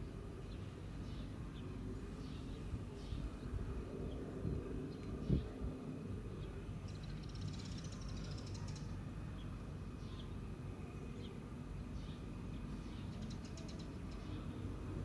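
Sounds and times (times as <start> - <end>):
steady low rumble: 0.0 - 7.3
small birds chirping: 0.4 - 5.7, 6.3 - 14.8.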